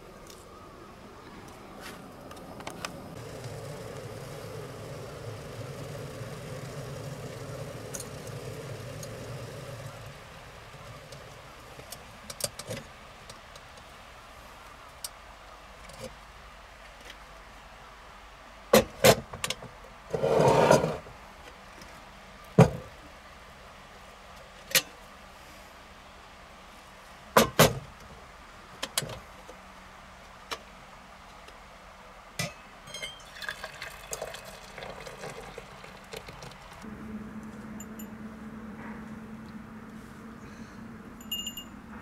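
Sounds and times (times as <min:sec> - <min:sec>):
metal kettle clinks and knocks: 0:32.4 - 0:33.6
water pouring into metal cup: 0:32.9 - 0:36.8.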